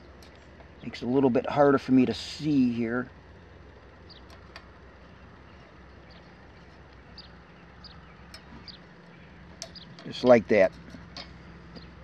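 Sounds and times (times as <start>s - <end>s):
faint outdoor background: 0.0s - 12.0s
small clicks of wire linkage: 0.2s - 0.8s, 4.1s - 4.8s, 8.3s - 12.0s
bird chirping: 3.9s - 12.0s.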